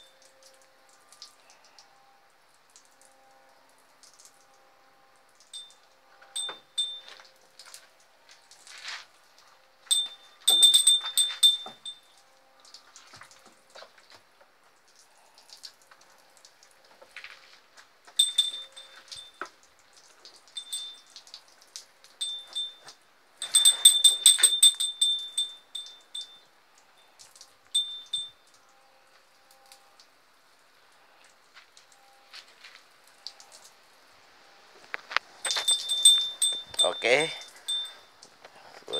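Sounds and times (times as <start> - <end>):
high bell-like chiming: 6.4 - 7.2, 9.9 - 12.1, 18.2 - 19.5, 20.6 - 21.1, 22.2 - 26.5, 27.8 - 28.4, 35.4 - 38.2.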